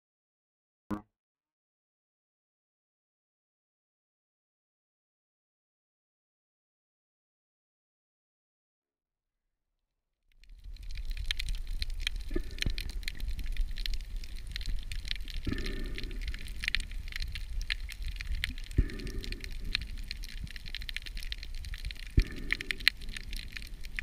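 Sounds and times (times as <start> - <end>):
snapping shrimp crackle: 10.3 - 24.0
low underwater rumble: 10.5 - 24.0.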